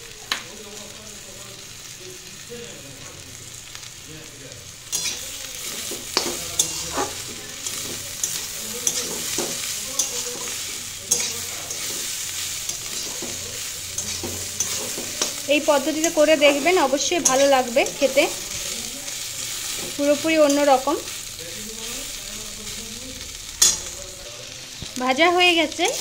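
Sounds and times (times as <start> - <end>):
vegetables sizzling in a pan: 0.0 - 26.0
metal spatula scraping a pan: 4.9 - 18.5.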